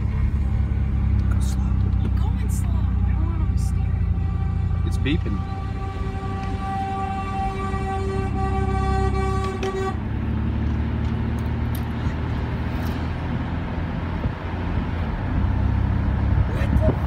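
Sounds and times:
vehicle horn long tone: 3.1 - 10.2.

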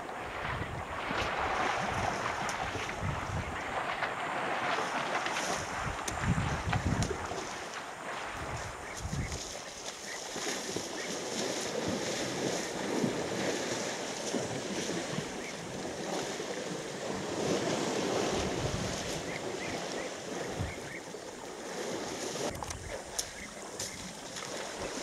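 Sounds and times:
wind buffeting microphone: 0.0 - 7.6, 8.2 - 9.6, 10.4 - 21.1
elephants splashing through water: 0.0 - 25.0.

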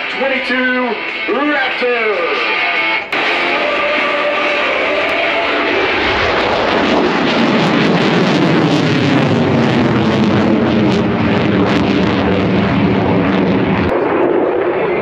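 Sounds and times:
jet flying overhead: 3.0 - 15.0.

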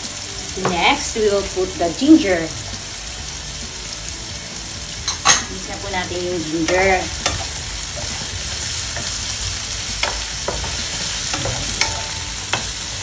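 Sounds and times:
onions sizzling in oil: 0.0 - 13.0
wooden spatula knocking pan: 10.0 - 13.0.

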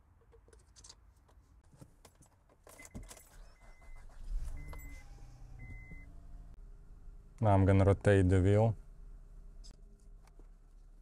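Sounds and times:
car keys jingling: 2.5 - 5.4.

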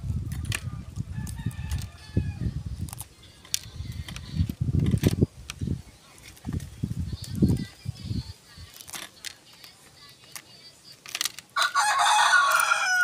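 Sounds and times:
rooster crowing: 1.1 - 2.4, 11.6 - 13.0
eggshells crackling: 2.8 - 7.8.

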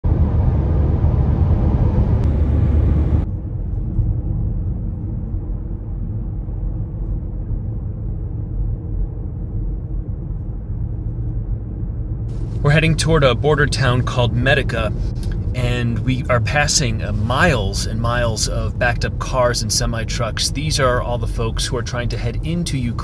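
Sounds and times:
car cabin road and engine rumble: 10.5 - 23.0.

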